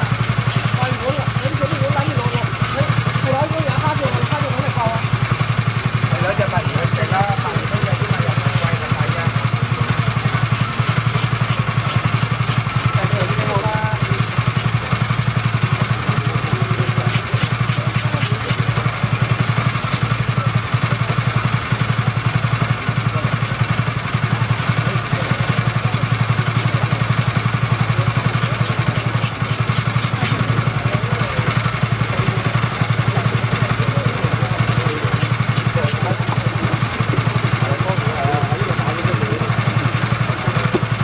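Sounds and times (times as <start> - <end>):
scaler scraping fish scales: 0.0 - 5.6, 9.4 - 20.4, 21.4 - 33.7, 34.6 - 36.5
pulsing motor hum: 0.0 - 41.0.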